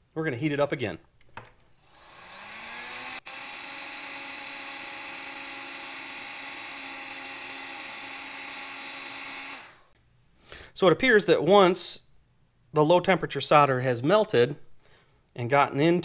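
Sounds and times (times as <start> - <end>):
heat gun humming: 1.8 - 10.0.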